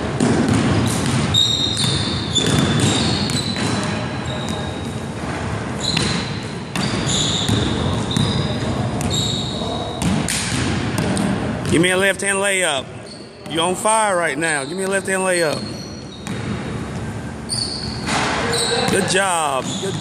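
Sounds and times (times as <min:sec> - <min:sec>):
basketball bouncing on wood floor: 0:00.2 - 0:04.6, 0:16.2 - 0:16.6
sneakers squeaking on court: 0:00.2 - 0:05.1, 0:05.8 - 0:10.2, 0:13.0 - 0:20.0.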